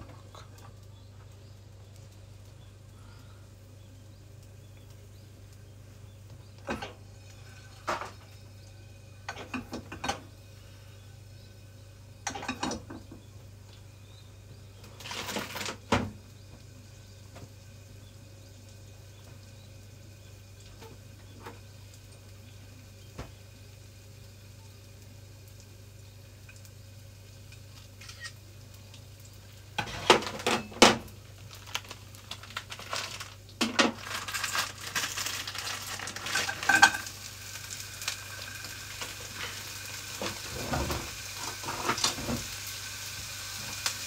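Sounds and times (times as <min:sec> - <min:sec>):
steady low hum: 0:00.0 - 0:15.0
kitchen utensils clattering: 0:09.3 - 0:10.2, 0:12.2 - 0:13.1, 0:29.8 - 0:31.0, 0:32.3 - 0:37.1, 0:40.2 - 0:42.4.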